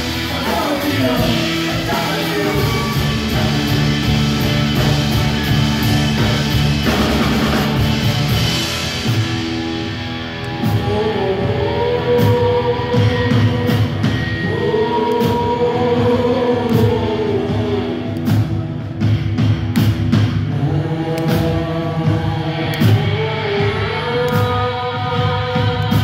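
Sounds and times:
live rock band playing: 0.0s - 26.0s
woman singing: 10.6s - 18.5s, 20.5s - 26.0s.

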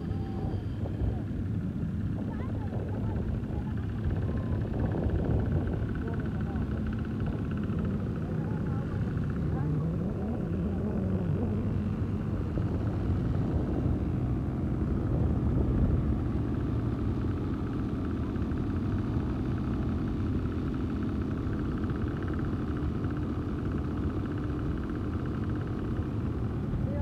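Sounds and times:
wind buffeting microphone: 0.0s - 18.8s
quad bike engines running: 0.0s - 27.0s.

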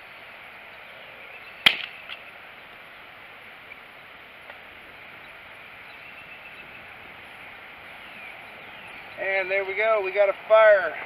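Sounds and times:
fire snapping: 1.6s - 2.2s.

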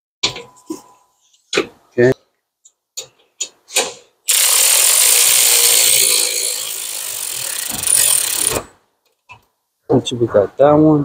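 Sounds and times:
electric ratchet running: 4.3s - 8.8s.

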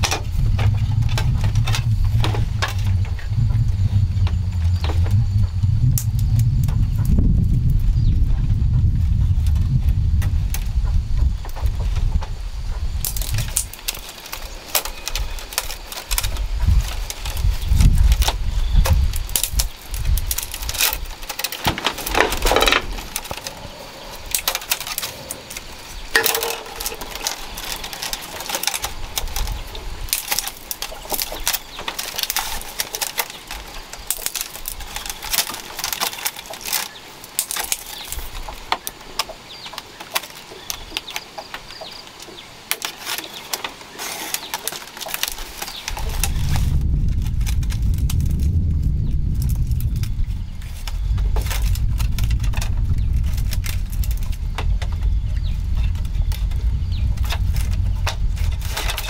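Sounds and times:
low rumble: 0.0s - 13.6s, 45.9s - 59.0s
bamboo strips clicking: 9.4s - 48.6s, 49.3s - 59.0s.

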